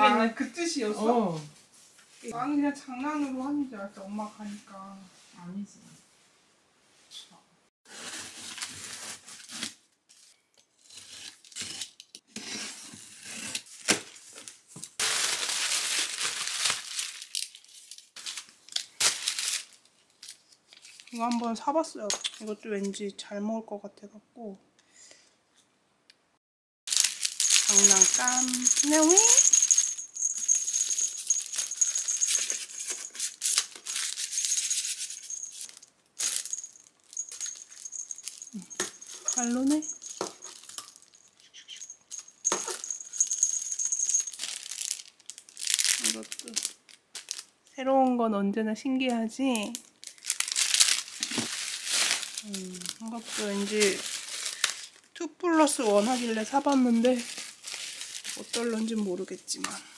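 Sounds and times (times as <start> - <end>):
packaging crinkling and rustling: 7.9 - 10.3, 13.6 - 21.3, 26.9 - 41.4, 42.9 - 47.6, 49.6 - 59.3
cat toy rattling: 27.0 - 33.4, 34.0 - 44.9.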